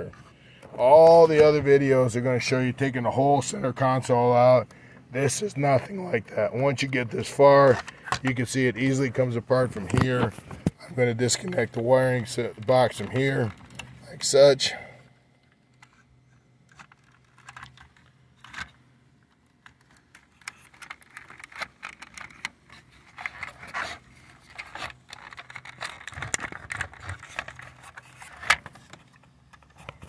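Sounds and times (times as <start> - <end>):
plastic parts clicking and rattling: 6.8 - 8.5, 9.5 - 14.1, 15.4 - 30.0.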